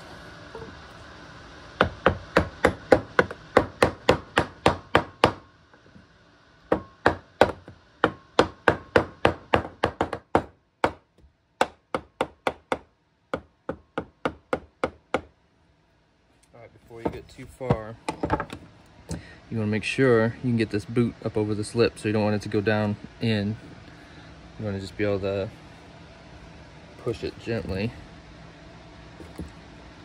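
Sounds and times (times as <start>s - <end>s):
hammer striking wooden board: 1.8s - 5.4s, 6.7s - 11.0s.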